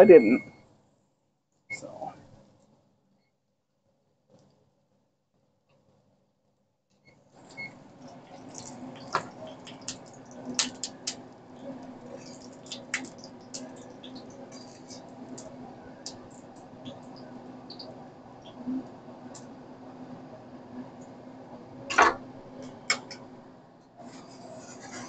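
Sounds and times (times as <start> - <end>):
oil sizzling in a pan: 8.0 - 17.9.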